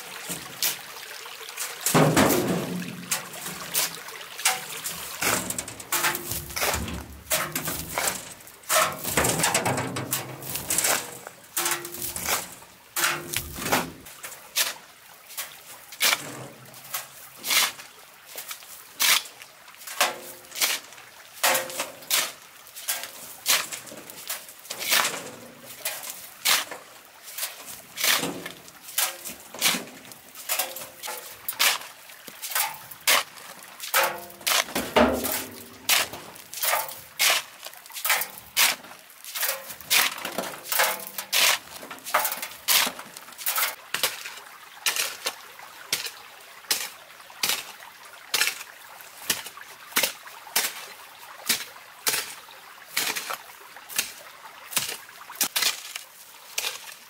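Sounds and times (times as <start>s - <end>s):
hoe scraping stony soil: 4.6s - 14.8s, 27.3s - 31.8s, 32.5s - 43.8s
gravel rattling: 4.9s - 14.1s.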